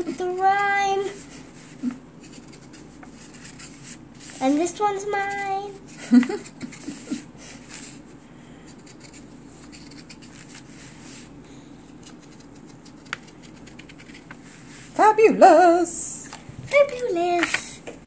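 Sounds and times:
marker scratching on felt: 0:01.2 - 0:04.6, 0:08.8 - 0:11.3, 0:12.0 - 0:14.3.

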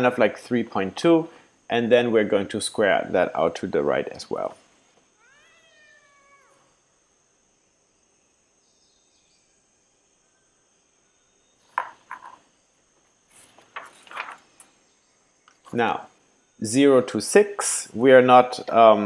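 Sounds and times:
cat meowing: 0:05.2 - 0:06.8
paper rustling and tapping: 0:13.4 - 0:14.4.

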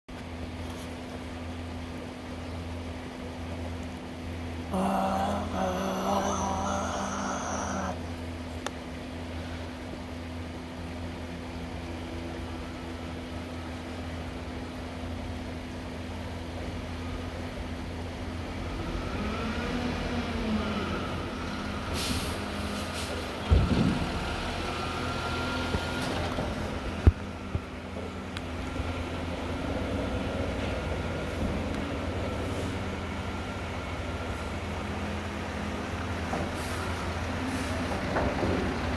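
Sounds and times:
garbage truck diesel engine: 0:00.2 - 0:38.9
air brakes hissing: 0:21.6 - 0:23.4, 0:36.4 - 0:37.9.

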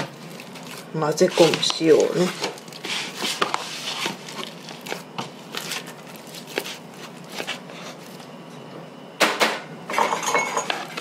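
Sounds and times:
wet dough squelching: 0:00.0 - 0:08.3.

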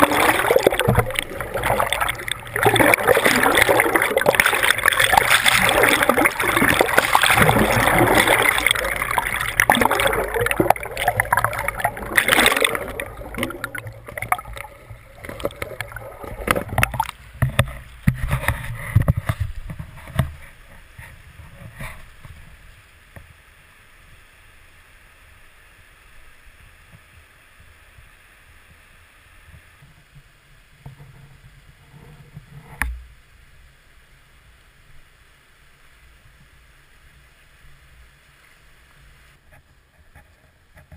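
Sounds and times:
river water rushing and churning: 0:00.0 - 0:17.1
water splashing: 0:00.0 - 0:18.6.

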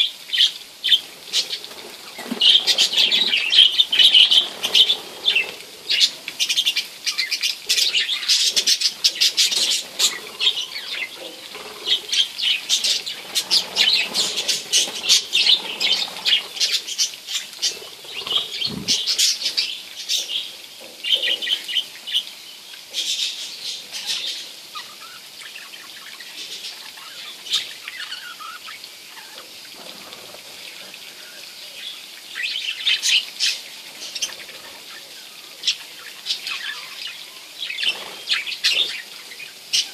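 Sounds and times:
budgerigars chirping and chattering: 0:00.0 - 0:29.4, 0:31.1 - 0:39.9.

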